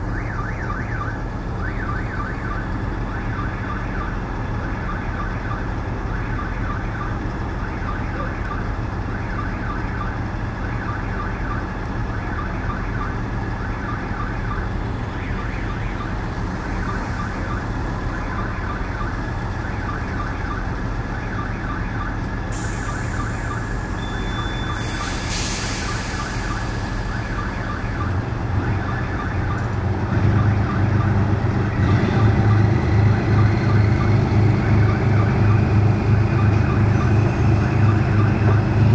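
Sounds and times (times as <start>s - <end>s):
diesel train engine: 0.0s - 38.9s
level-crossing warning bell: 22.8s - 28.2s
air hiss: 24.8s - 27.1s.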